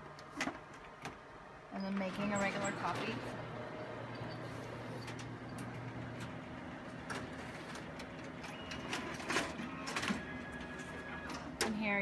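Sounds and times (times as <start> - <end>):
copier motor hum: 0.0 - 12.0
copier clicks and clacks: 4.9 - 11.9.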